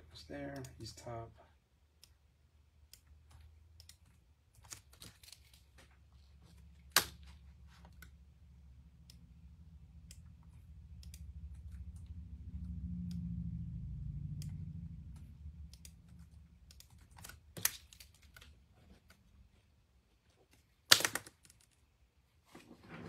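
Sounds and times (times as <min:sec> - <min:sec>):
low hum: 0:05.9 - 0:20.3
computer keyboard typing: 0:15.1 - 0:18.5.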